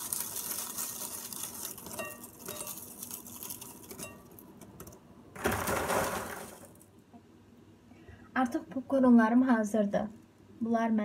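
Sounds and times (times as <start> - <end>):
caramel popcorn crackling: 0.0 - 6.9.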